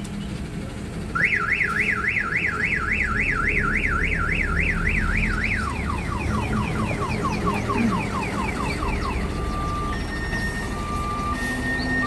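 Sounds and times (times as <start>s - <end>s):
electronic alarm siren warbling: 1.2s - 12.0s.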